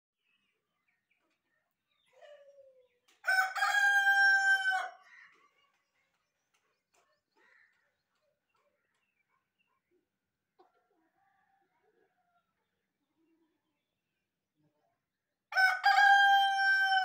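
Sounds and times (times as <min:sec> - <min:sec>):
rooster crowing: 0:03.3 - 0:05.0, 0:15.5 - 0:17.0.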